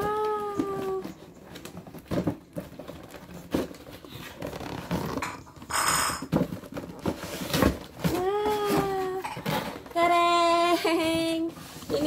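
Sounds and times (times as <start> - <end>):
cardboard packaging knocks and rustles: 0.5 - 5.6, 6.2 - 10.0
cardboard rasping scrape: 2.7 - 8.1.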